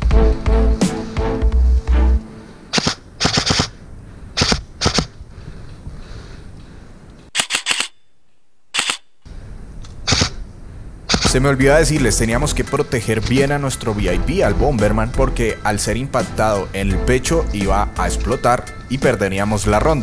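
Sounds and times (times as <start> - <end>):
background music: 0.0 - 2.6, 11.3 - 20.0
airsoft rifle firing clicks: 2.7 - 3.8, 4.4 - 5.2.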